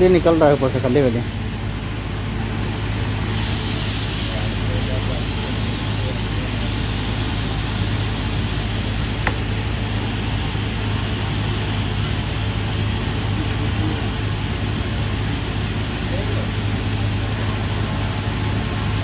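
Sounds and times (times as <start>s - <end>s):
fan running: 0.0s - 19.0s
welding machine buzzing hum: 3.3s - 16.1s.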